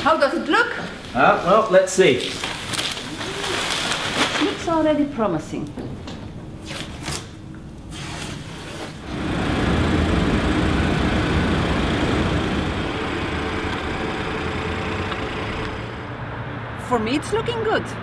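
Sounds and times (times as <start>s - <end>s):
plastic film and tape crackling: 1.1s - 5.2s
machine droning: 9.0s - 16.8s.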